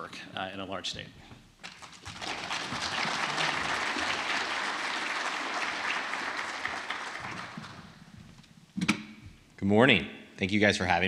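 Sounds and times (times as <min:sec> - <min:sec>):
audience applauding: 0:01.6 - 0:08.1.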